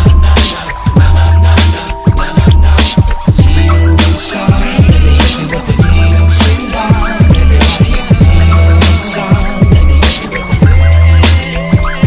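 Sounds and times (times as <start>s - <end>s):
booming kick drums: 0.0s - 1.2s, 2.1s - 3.7s, 4.5s - 6.1s, 6.9s - 8.5s, 9.3s - 10.9s
deep bass notes: 0.0s - 12.0s
hip hop backing music: 0.0s - 12.0s.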